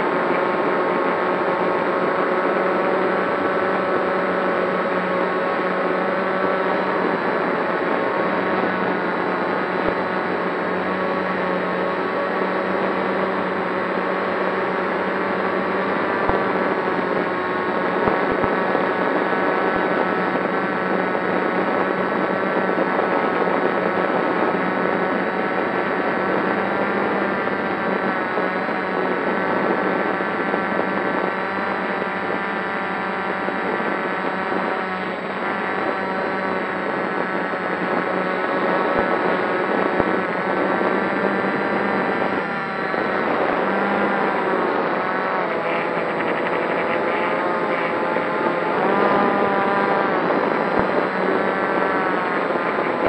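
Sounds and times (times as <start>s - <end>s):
drone motors whining: 0.0s - 53.0s.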